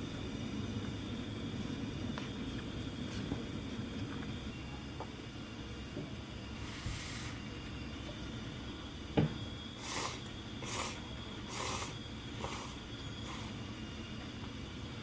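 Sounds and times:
noodles being slurped: 9.8 - 13.6.

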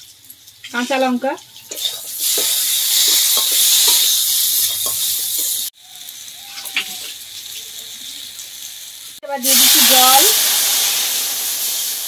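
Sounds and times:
vegetables sizzling in hot oil: 0.0 - 12.0
metal spatula scraping: 0.8 - 5.6.

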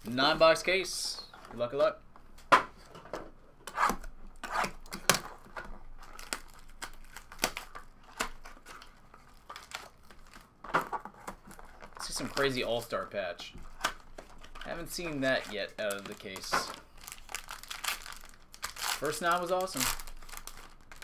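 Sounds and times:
plastic shrink wrap tearing: 13.8 - 21.0.

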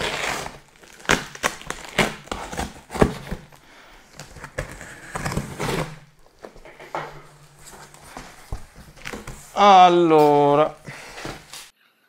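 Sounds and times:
knife slitting packing tape: 0.0 - 3.5, 4.2 - 6.1
cardboard scraping and crackling: 0.0 - 11.7.

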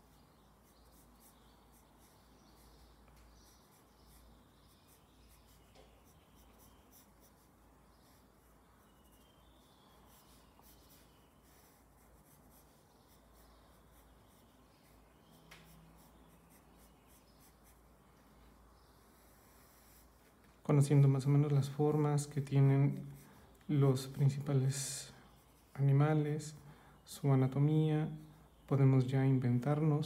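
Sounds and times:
pencil scratching on paper: 0.0 - 18.0, 19.0 - 20.4.

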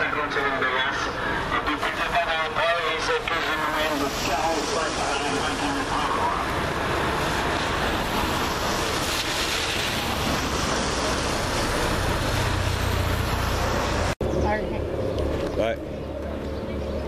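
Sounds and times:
vehicle engines passing: 0.0 - 17.0
tyre hiss on wet road: 3.1 - 14.2.

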